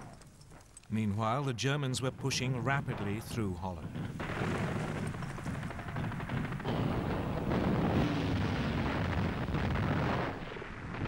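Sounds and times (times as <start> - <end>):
low rumble of explosions: 1.2 - 11.0
rapid gunfire: 2.9 - 11.0.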